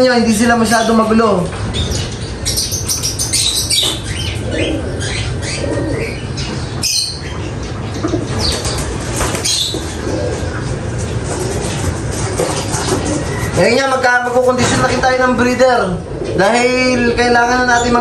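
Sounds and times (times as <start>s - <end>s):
pigeons cooing: 0.7s - 13.8s, 14.6s - 18.0s
wings flapping: 8.3s - 13.5s
clattering on perches: 10.9s - 13.6s, 14.4s - 15.2s.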